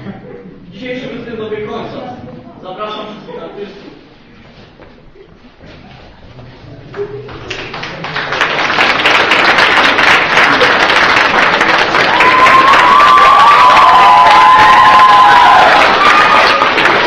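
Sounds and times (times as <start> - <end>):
audience applauding: 7.2 - 17.0
high shrill call from crowd: 12.1 - 16.8.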